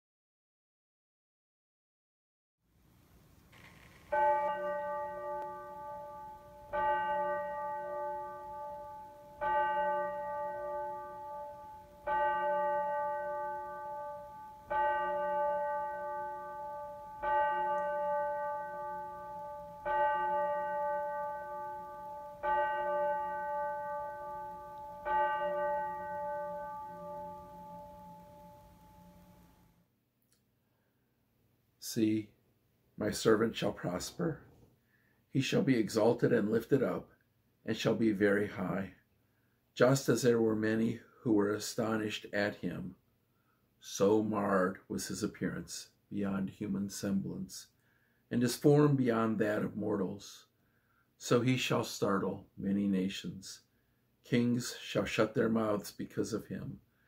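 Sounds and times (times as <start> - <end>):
bell tolling: 4.1 - 29.6.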